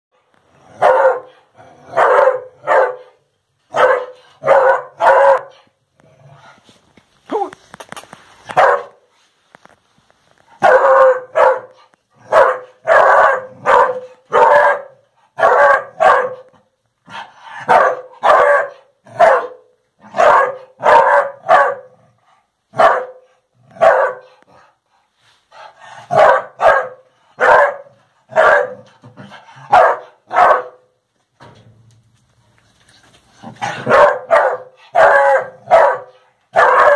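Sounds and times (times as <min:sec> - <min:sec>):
dog barking: 0:00.8 - 0:05.8, 0:08.5 - 0:09.1, 0:10.6 - 0:16.5, 0:17.6 - 0:22.0, 0:22.7 - 0:24.4, 0:26.1 - 0:28.9, 0:29.6 - 0:30.9, 0:33.6 - 0:36.9.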